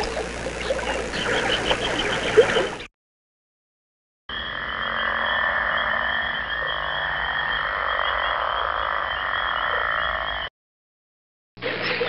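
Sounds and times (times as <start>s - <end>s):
frogs chorus: 0.0s - 2.9s, 4.3s - 10.5s.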